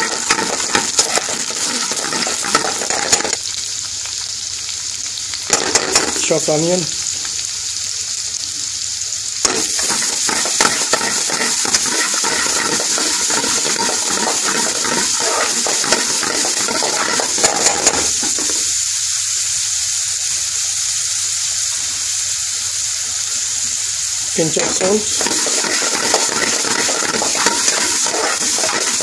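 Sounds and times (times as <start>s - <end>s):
utensil scraping metal pan: 0.0s - 3.4s, 5.5s - 6.4s, 9.5s - 18.7s, 24.4s - 29.0s
onion and garlic sizzling in oil: 0.0s - 29.0s.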